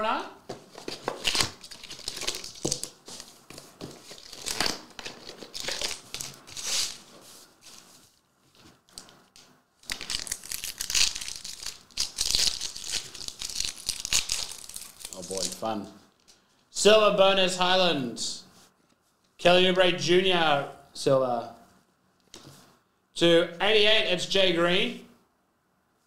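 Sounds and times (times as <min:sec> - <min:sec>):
foil wrapper crinkling: 0:00.8 - 0:07.9, 0:09.8 - 0:15.7
foil pack tearing: 0:01.2 - 0:03.0, 0:09.8 - 0:15.6.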